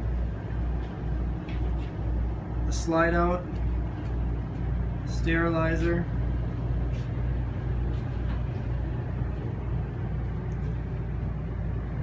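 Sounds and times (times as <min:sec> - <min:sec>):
machinery droning: 0:00.0 - 0:12.0.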